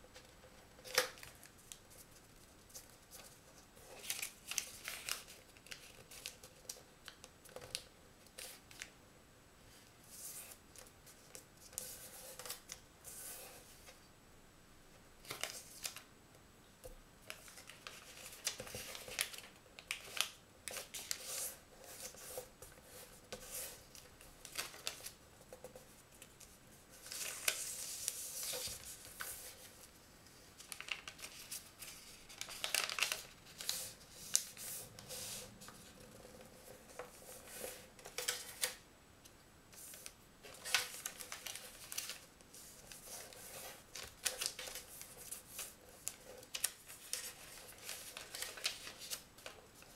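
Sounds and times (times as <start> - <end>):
paper rustling and crackling: 0.2 - 8.9, 17.3 - 29.9, 30.6 - 38.8, 39.8 - 49.9.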